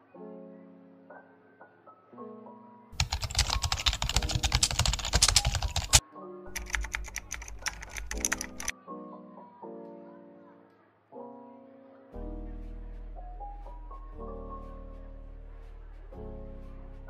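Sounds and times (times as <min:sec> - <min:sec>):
background music with melody: 0:00.0 - 0:17.0
computer keyboard typing: 0:03.0 - 0:08.7.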